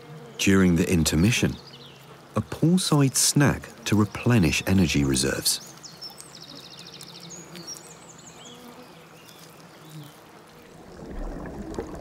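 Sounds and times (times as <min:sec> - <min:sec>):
stream babbling: 0:10.4 - 0:12.0.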